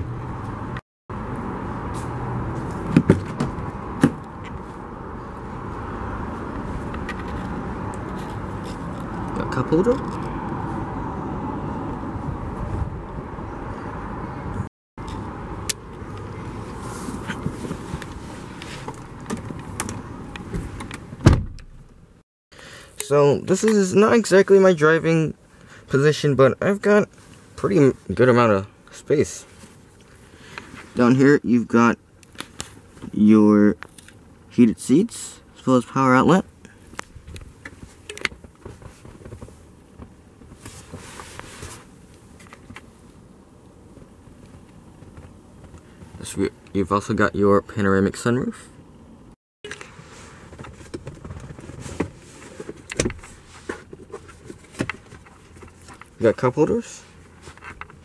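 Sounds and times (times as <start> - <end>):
clicks and rustling in a car: 17.1 - 22.0, 36.8 - 43.0, 43.9 - 46.4, 49.7 - 58.0.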